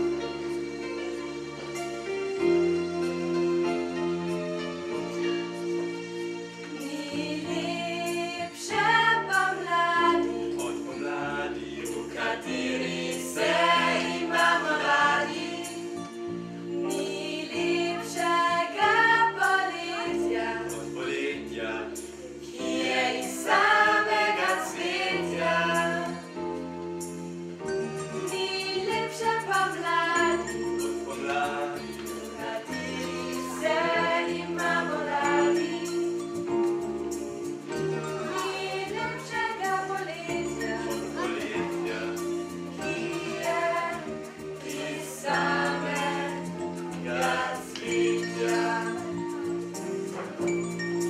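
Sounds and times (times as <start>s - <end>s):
group of voices singing: 6.8s - 16.1s, 16.8s - 26.5s, 28.2s - 36.2s, 38.0s - 50.3s.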